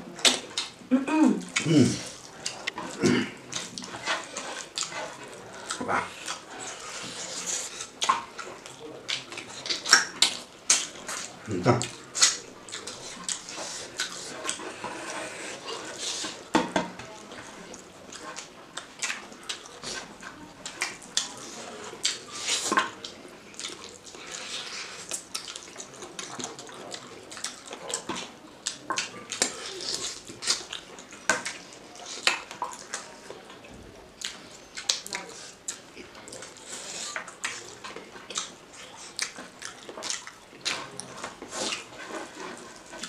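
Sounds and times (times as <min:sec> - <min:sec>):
wet chewing and lip-smacking: 0:00.1 - 0:43.0.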